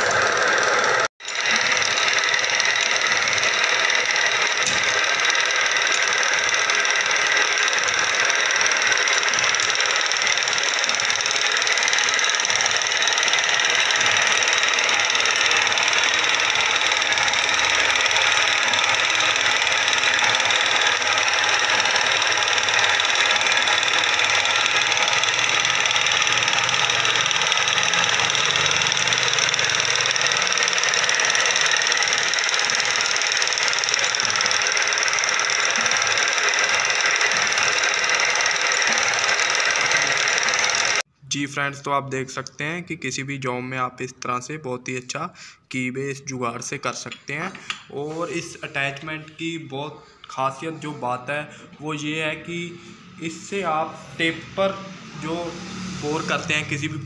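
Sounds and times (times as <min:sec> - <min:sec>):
lathe slotting attachment running: 0:00.0 - 0:41.1.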